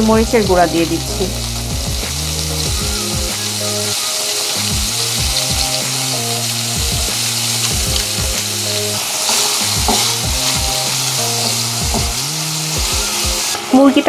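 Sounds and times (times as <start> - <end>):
background music with steady beat: 0.0 - 14.0
chicken sizzling in a pan: 0.0 - 14.0
wooden spatula stirring: 8.8 - 12.2.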